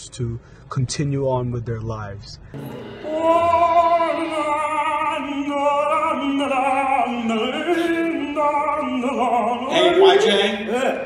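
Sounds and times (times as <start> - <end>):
man singing operatically: 3.0 - 11.0.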